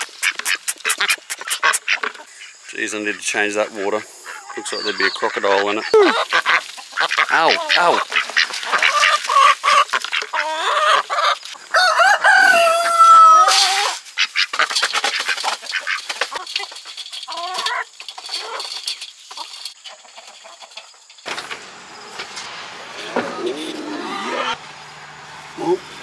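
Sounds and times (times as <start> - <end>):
bills clicking at grain: 0.0 - 2.2, 6.2 - 11.6, 13.5 - 21.7
ducks calling: 0.0 - 16.6, 21.3 - 26.0
chickens clucking: 0.0 - 26.0.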